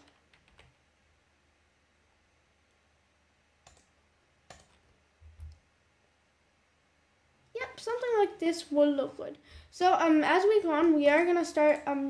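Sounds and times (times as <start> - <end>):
keyboard and mouse clicks: 0.0 - 0.8, 3.6 - 5.7, 11.5 - 12.0.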